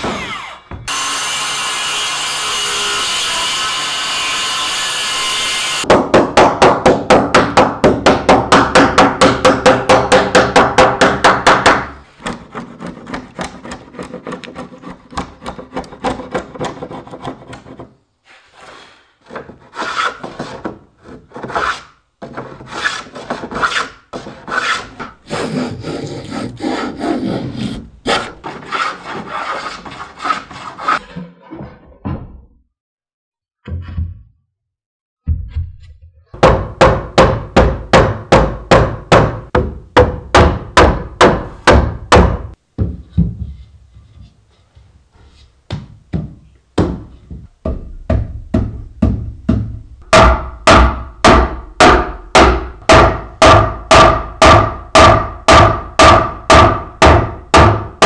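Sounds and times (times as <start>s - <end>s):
circular saw cutting plywood: 0.0s - 5.8s, 22.8s - 31.1s
chisel scraping wood: 12.2s - 31.2s.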